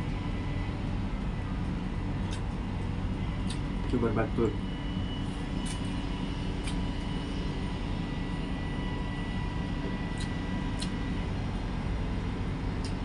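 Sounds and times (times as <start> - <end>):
faint high hum: 0.0 - 13.0
low mechanical rumble: 0.0 - 13.0.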